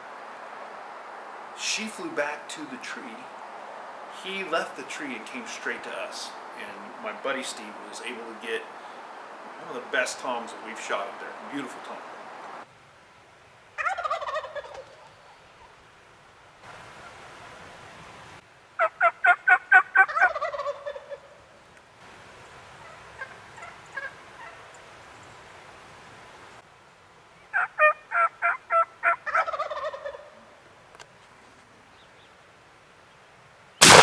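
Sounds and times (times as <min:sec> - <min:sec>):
turkey gobbling: 0:13.8 - 0:15.8, 0:18.8 - 0:21.4, 0:22.8 - 0:24.6, 0:27.5 - 0:30.5.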